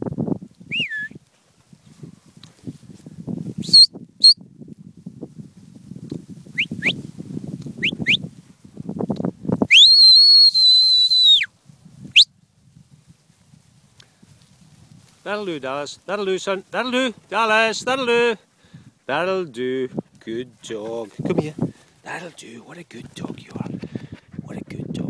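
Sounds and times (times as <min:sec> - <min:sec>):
person whistling commands: 0:00.7 - 0:01.2, 0:03.6 - 0:04.4, 0:09.7 - 0:11.5
low rustling: 0:11.6 - 0:24.7.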